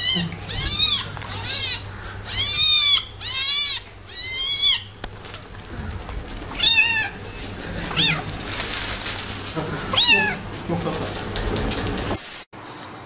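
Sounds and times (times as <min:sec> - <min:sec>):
cat meowing: 0:00.0 - 0:05.0, 0:06.5 - 0:07.2, 0:07.9 - 0:08.3, 0:09.9 - 0:10.4.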